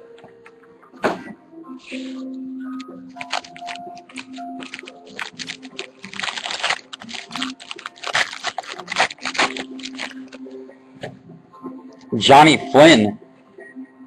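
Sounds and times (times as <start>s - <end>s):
faint background music: 0.0s - 14.0s
cards rustling: 2.8s - 10.4s
wrapper tearing and crinkling: 3.2s - 10.4s.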